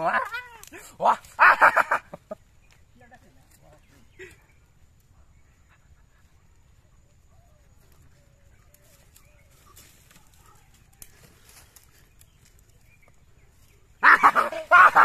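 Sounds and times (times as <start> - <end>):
bamboo sticks clicking: 0.0 - 1.4.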